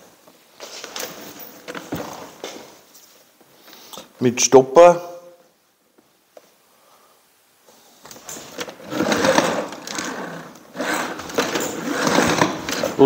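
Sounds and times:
hose reel rattling: 0:08.2 - 0:13.0.

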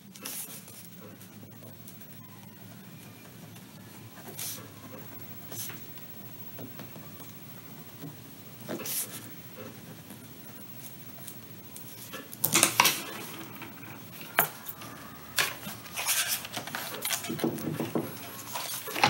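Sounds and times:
paper rustle: 0:10.8 - 0:19.0.

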